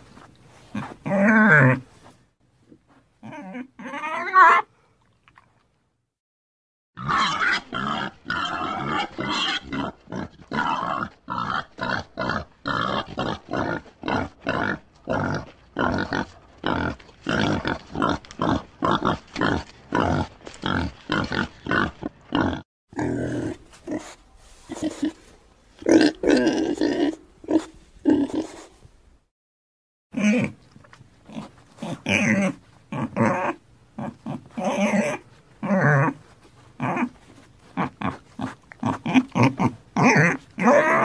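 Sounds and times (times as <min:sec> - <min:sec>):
pig grunting: 0:07.0 - 0:28.7, 0:31.3 - 0:36.2, 0:36.8 - 0:41.0.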